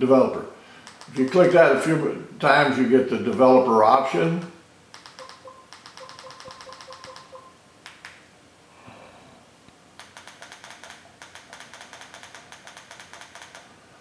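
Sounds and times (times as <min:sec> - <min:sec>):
remote control button clicks: 0:04.9 - 0:08.2.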